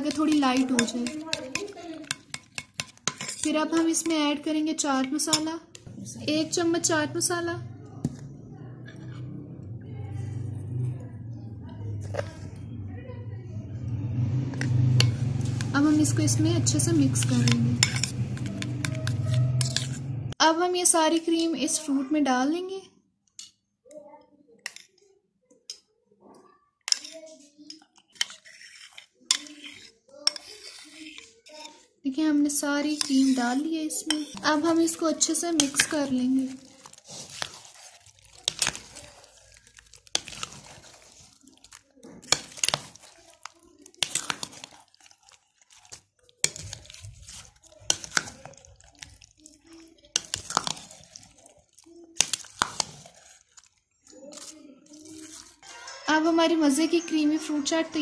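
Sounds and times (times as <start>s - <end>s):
utensil clinking against bowl: 0.0s - 4.2s, 16.9s - 20.0s, 35.6s - 43.4s, 45.8s - 49.3s, 50.1s - 53.7s
spoon squelching through dressing: 0.0s - 12.7s, 13.8s - 20.3s, 24.6s - 25.0s, 26.9s - 58.0s
cream pouring: 35.0s - 55.6s.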